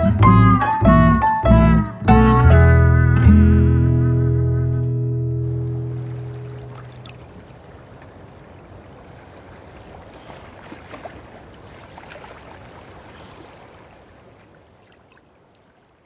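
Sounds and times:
gentle running water: 5.5 - 16.0.

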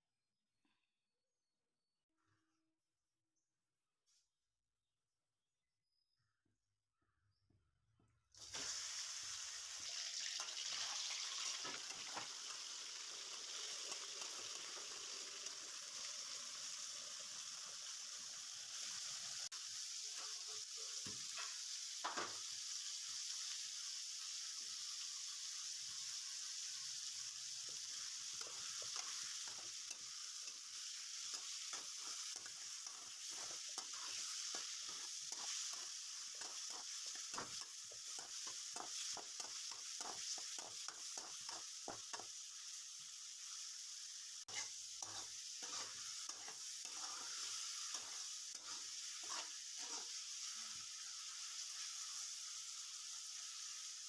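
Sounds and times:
chicken sizzling in hot oil: 8.4 - 54.0
metal spoon scraping wok: 44.5 - 50.4.

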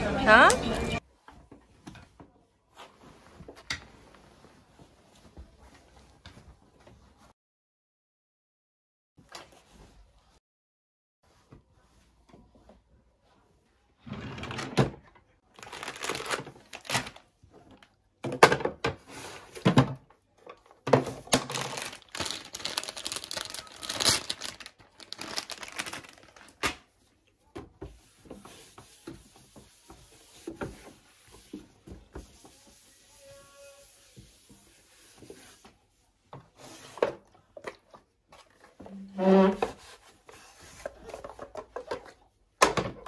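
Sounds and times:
plastic packaging rustling: 15.5 - 17.3, 21.2 - 26.7
tissue rubbing on wood: 21.8 - 26.4.

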